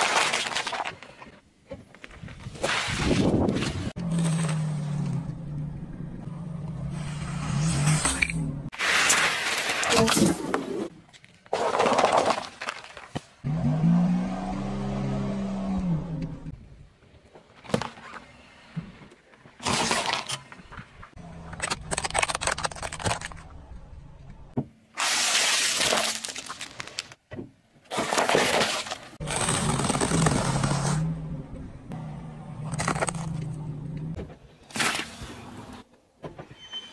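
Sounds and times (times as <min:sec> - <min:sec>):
tyre crushing small objects: 0:00.0 - 0:04.8, 0:19.6 - 0:23.6, 0:25.0 - 0:27.2, 0:27.9 - 0:31.0
low wavering hum: 0:04.0 - 0:08.7, 0:30.6 - 0:34.2.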